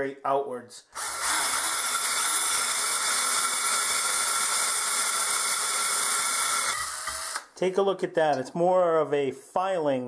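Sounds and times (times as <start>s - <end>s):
electric drill boring into metal: 1.0s - 7.5s.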